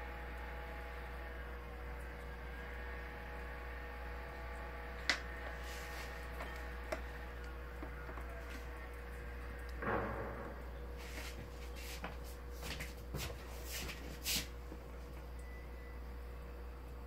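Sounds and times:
electrical hum with faint whine: 0.0s - 17.0s.

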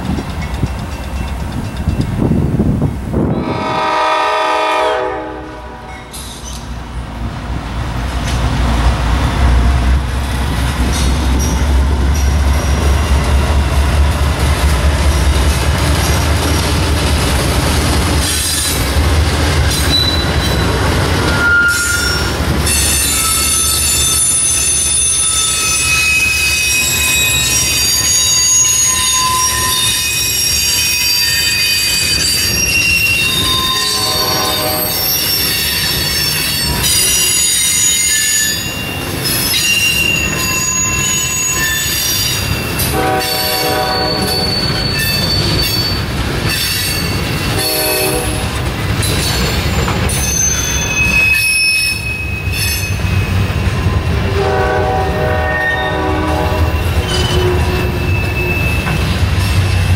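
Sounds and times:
diesel locomotives rumbling past: 0.0s - 59.9s
rail noise: 0.0s - 59.9s
train horn chord: 3.4s - 6.1s, 33.9s - 35.0s, 42.9s - 44.5s, 47.6s - 48.5s, 54.3s - 58.0s
train wheels squealing: 5.9s - 6.8s, 19.7s - 48.3s, 49.0s - 54.4s, 55.4s - 59.7s.

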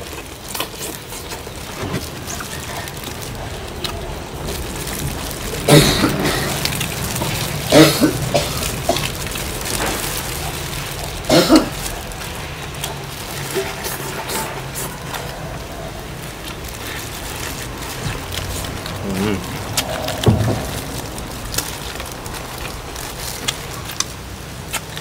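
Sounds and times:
people eating: 0.0s - 25.0s
throat noises: 2.3s - 9.2s, 13.6s - 22.6s.

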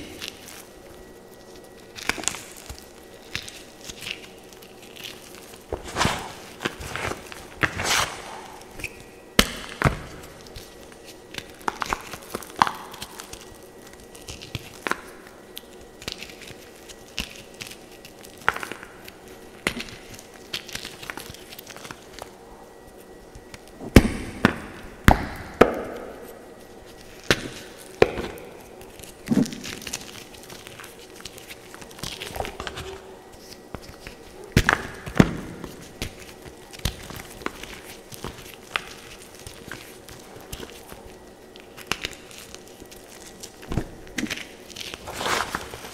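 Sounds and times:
dry crunching and crumbling: 0.0s - 25.3s, 25.9s - 45.9s
pieces snapping: 1.6s - 18.9s, 26.9s - 45.9s.

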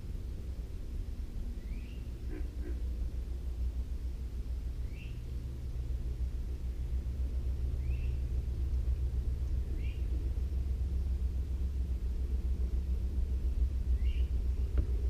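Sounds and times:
low rumble: 0.0s - 15.0s
bird chirping: 1.6s - 2.7s, 4.8s - 5.2s, 7.8s - 8.3s, 9.7s - 10.2s, 13.9s - 14.4s.

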